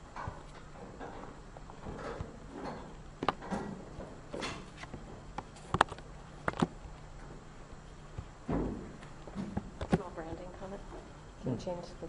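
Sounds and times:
sharp knocks and clicks: 0.1 - 6.7.

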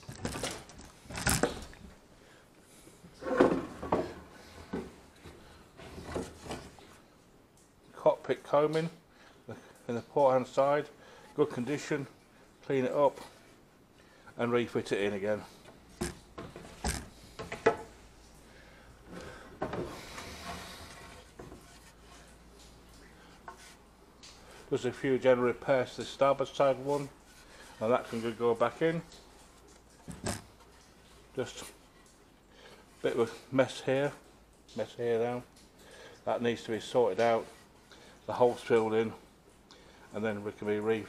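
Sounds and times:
wood knocking and scraping on wood: 0.0 - 2.0, 3.0 - 7.0, 15.3 - 18.0, 19.1 - 24.9, 26.0 - 32.2
timber scraping across bench: 3.2 - 7.0, 19.2 - 22.4
wood knocking on wood: 16.0 - 17.9.

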